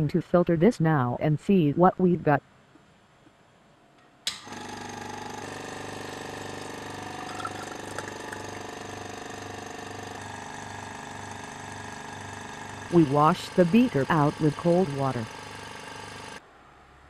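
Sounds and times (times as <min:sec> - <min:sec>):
vacuum pump throbbing: 0:04.4 - 0:16.4.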